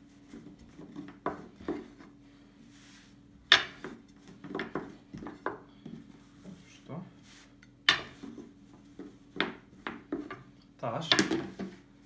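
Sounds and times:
rolling pin rolling dough: 0.0 - 12.0
rolling pin knocking on board: 9.0 - 10.4.

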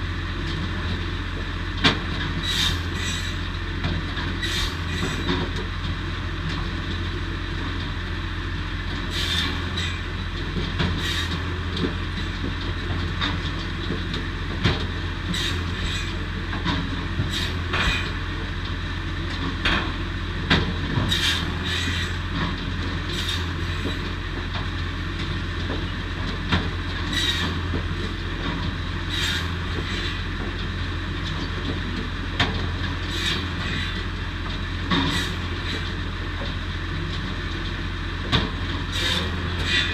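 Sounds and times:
knocks and clatter of logs: 9.1 - 39.9
firewood saw running: 38.9 - 39.9.

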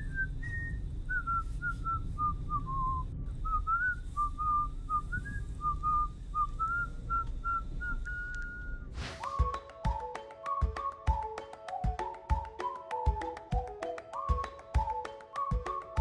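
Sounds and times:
steady low rumble: 0.0 - 9.0
person whistling a tune: 0.0 - 16.0.

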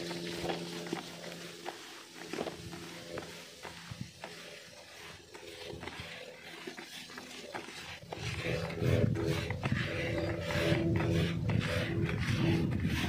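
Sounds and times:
hands mixing damp bait in bucket: 0.0 - 13.0
low rumble: 8.1 - 13.0.

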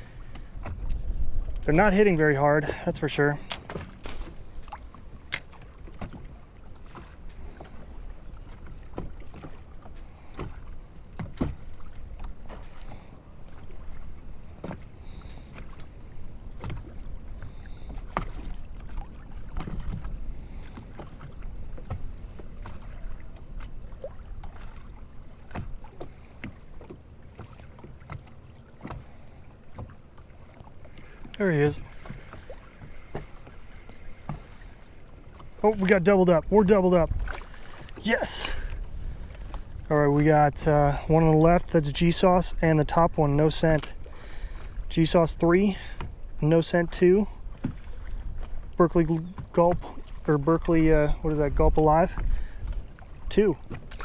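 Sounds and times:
low wind rumble: 0.0 - 27.3, 28.7 - 43.2
waves lapping against boat hull: 0.0 - 54.0.

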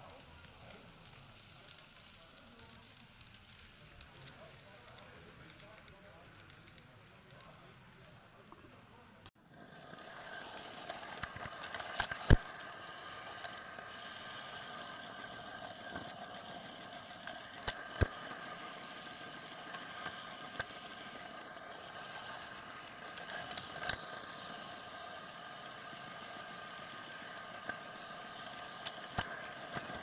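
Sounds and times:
model train motor hum: 0.0 - 8.2, 8.9 - 30.0
wheels clicking over track joints: 9.6 - 30.0.

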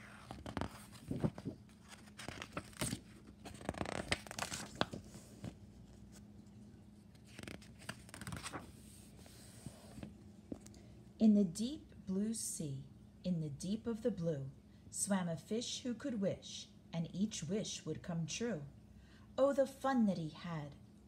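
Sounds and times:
book pages turning: 0.0 - 6.3, 7.0 - 10.7.

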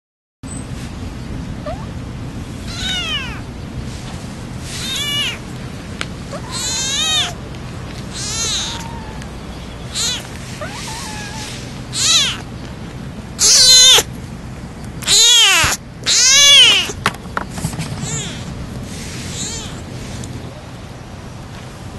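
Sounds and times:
kitten mewing: 2.7 - 3.5, 4.7 - 5.5, 6.3 - 7.4, 8.0 - 12.5, 13.4 - 14.1, 15.0 - 17.0, 18.0 - 19.9.

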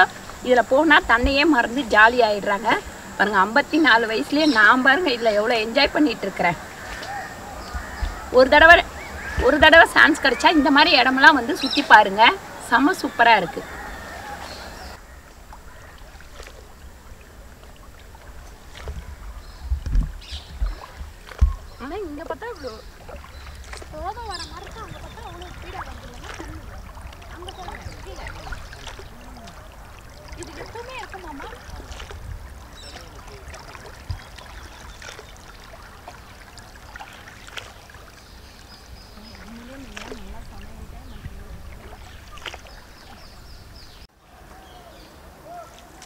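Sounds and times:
paddle swishing in water: 0.0 - 46.0
small splashes: 0.0 - 46.0
wind rumble on microphone: 6.6 - 12.6, 13.6 - 34.9, 38.8 - 44.0.

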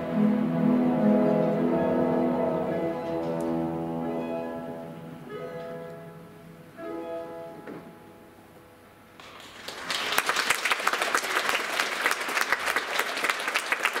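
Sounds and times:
audience applause: 9.2 - 14.0.

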